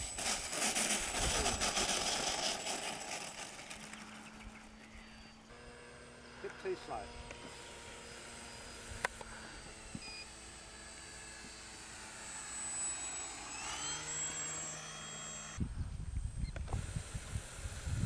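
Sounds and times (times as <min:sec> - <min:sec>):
model plane motor whine: 0:00.0 - 0:18.0
wind buffeting microphone: 0:15.6 - 0:18.0.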